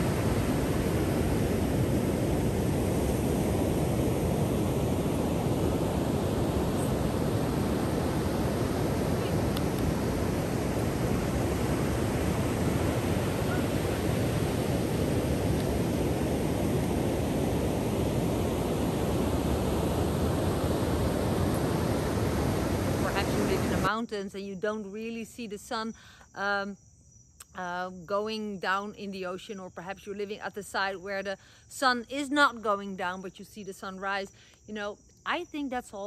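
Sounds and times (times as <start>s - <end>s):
waves breaking on sandy beach: 0.0s - 24.0s.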